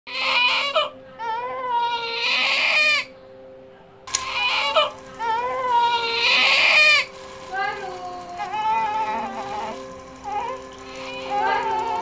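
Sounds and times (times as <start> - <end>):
newborn baby crying: 0.1 - 3.1, 4.2 - 7.1
sharp click: 4.1 - 4.8.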